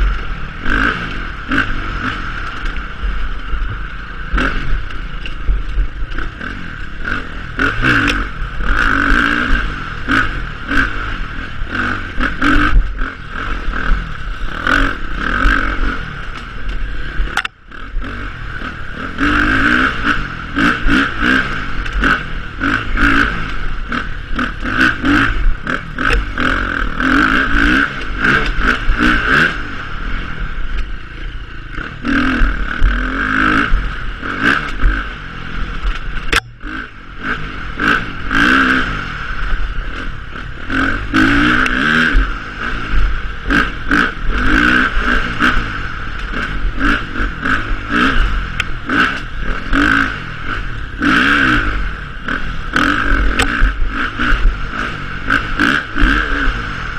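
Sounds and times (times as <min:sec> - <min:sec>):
dirt bike engine revving: 0:00.0 - 0:56.9
rattles and knocks from bike: 0:01.5 - 0:09.2, 0:11.6 - 0:29.5, 0:35.6 - 0:36.8, 0:52.2 - 0:56.3.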